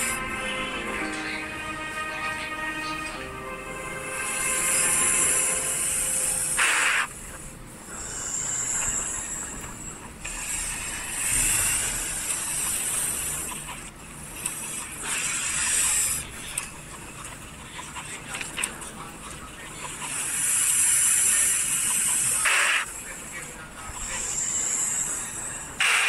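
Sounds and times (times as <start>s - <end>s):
animal hissing: 4.1s - 7.2s, 7.9s - 13.5s, 20.2s - 22.9s, 24.0s - 26.0s.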